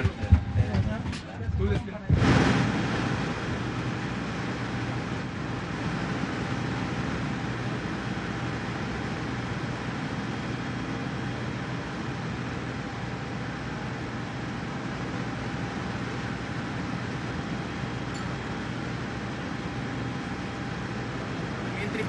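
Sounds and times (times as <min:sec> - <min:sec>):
steady rushing noise: 0:00.0 - 0:08.7.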